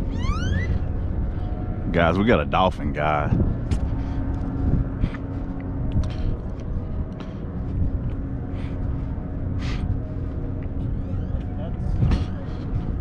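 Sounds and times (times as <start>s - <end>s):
faint continuous hum: 0.0s - 13.0s
low outdoor rumble: 0.0s - 13.0s.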